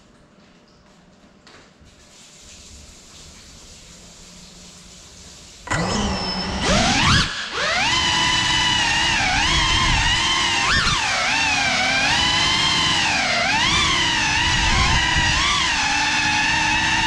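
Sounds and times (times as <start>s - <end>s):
drone motors whining: 5.7s - 17.0s.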